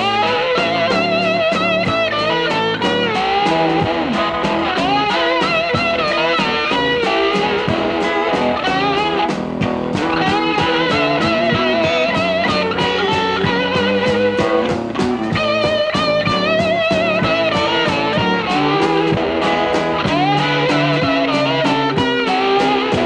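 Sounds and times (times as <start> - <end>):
drum beat: 0.0 - 23.0
electric blues guitar: 0.0 - 23.0.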